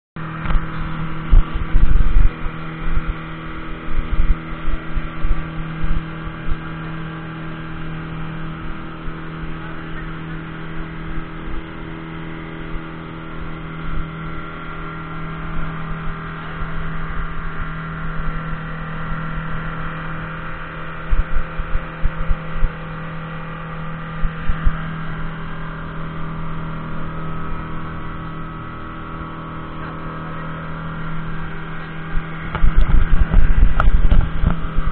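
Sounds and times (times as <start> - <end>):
outboard motor droning: 0.2 - 34.9
low thumps: 24.0 - 25.6, 30.8 - 34.9.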